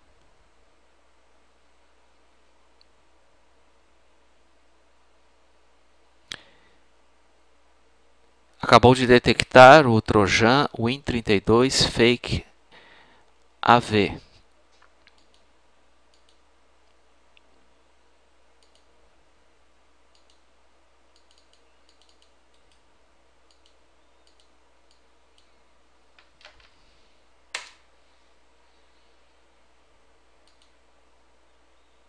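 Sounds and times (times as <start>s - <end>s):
computer mouse and keyboard clicks: 21.1s - 22.8s.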